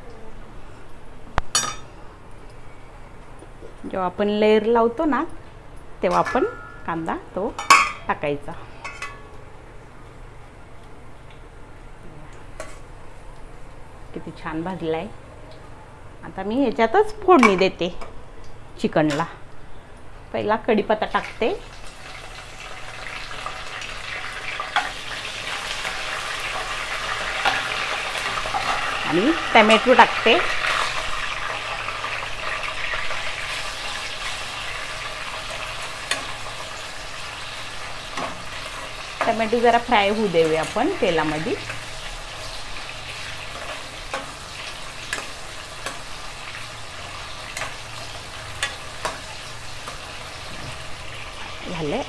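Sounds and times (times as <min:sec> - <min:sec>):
leaves sizzling in hot oil: 0:20.8 - 0:52.0.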